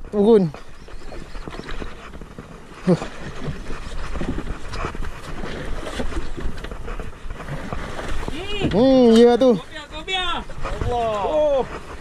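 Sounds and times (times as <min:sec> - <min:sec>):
sea against a boat: 0:00.0 - 0:12.0
wind buffeting microphone: 0:00.0 - 0:12.0.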